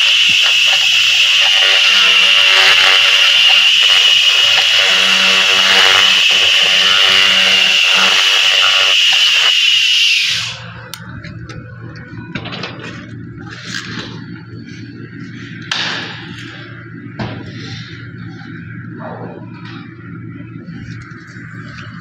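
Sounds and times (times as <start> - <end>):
laser cleaner hissing crackle: 0.0 - 10.6.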